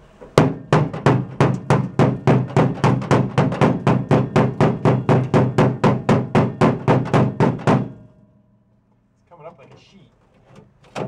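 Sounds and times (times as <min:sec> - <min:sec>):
hammer blows on filler: 0:00.3 - 0:08.3.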